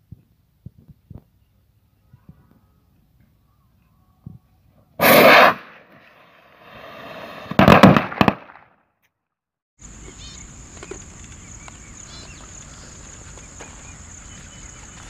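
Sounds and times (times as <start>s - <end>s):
firework rushing burst and hiss: 5.0s - 8.5s
firework bangs and crackles: 5.0s - 8.6s.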